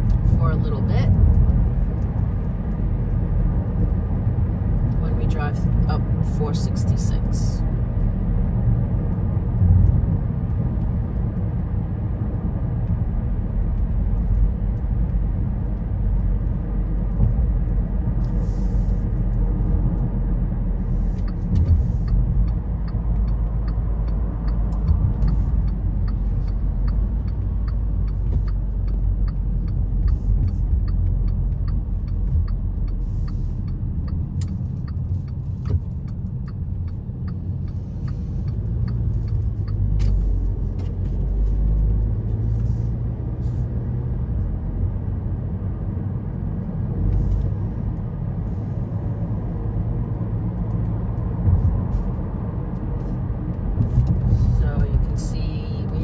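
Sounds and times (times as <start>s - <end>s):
car engine and tyre rumble: 0.0s - 56.0s
light ticking: 21.2s - 41.2s.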